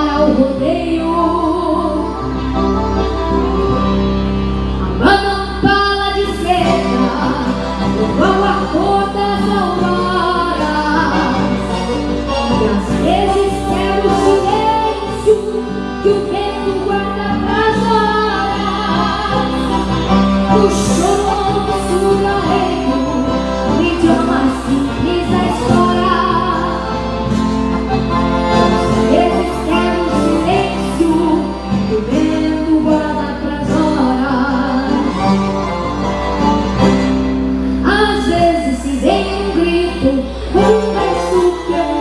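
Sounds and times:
guitar: 0.0s - 42.0s
piano accordion: 0.0s - 42.0s.

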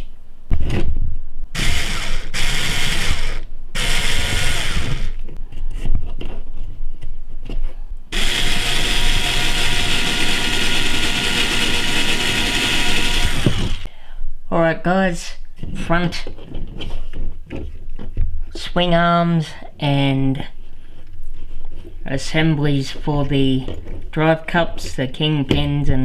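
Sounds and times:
cordless screwdriver whirring: 1.6s - 5.2s, 8.2s - 13.9s.

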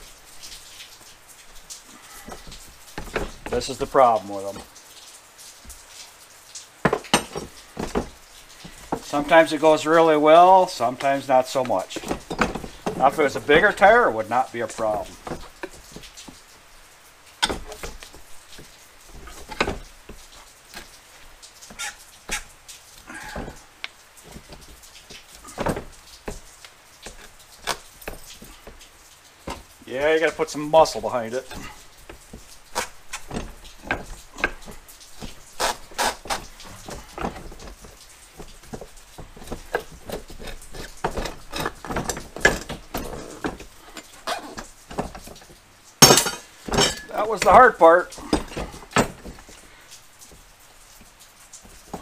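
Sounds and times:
scraping: 0.0s - 4.8s, 6.8s - 52.0s
metal clanks and clicks: 1.6s - 5.8s, 6.8s - 16.5s, 17.4s - 21.0s, 23.3s - 49.6s
rubbery tire scrapes: 17.5s - 23.6s, 29.5s - 45.5s
metal bar clanking on rim: 46.0s - 47.7s.

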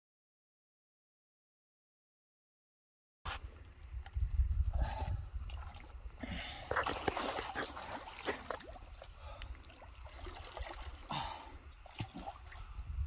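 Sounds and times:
water splashing and trickling: 3.9s - 13.0s
fish splashing in water: 6.6s - 12.8s.

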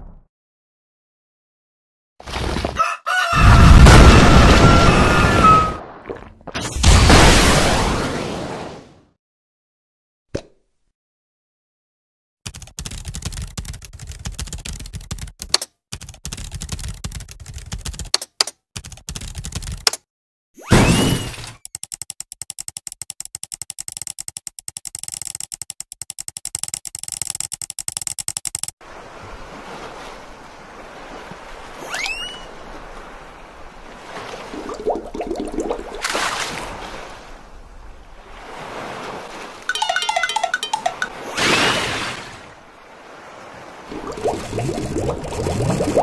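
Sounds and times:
short rising whistle: 4.6s - 5.8s
fast typing on keyboard: 12.5s - 18.2s, 18.8s - 20.0s, 21.7s - 28.7s
fishing reel ticks: 21.6s - 28.7s
ocean waves washing: 28.8s - 46.0s.

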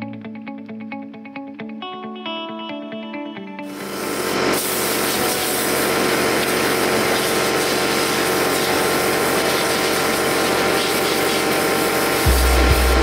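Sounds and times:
compressed air hissing: 3.6s - 13.0s.

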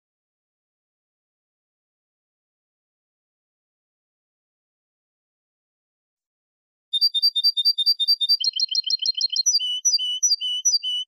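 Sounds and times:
goldfinch singing: 7.0s - 11.0s.

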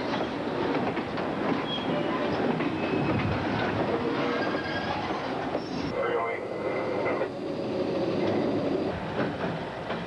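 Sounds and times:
train wheels clacking over rail joints: 0.0s - 5.7s, 7.9s - 10.0s
thin wheel squeals: 4.3s - 5.9s.

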